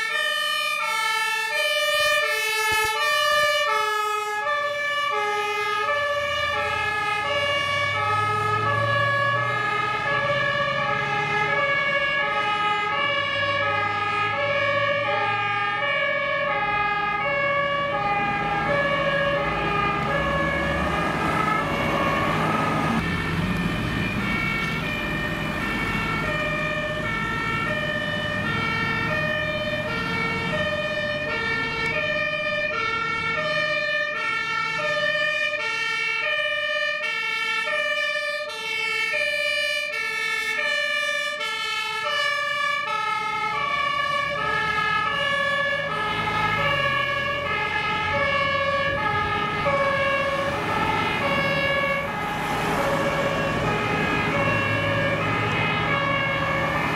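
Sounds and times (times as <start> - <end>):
truck engines: 0.0 - 56.9
two-tone fire engine sirens: 0.0 - 56.9.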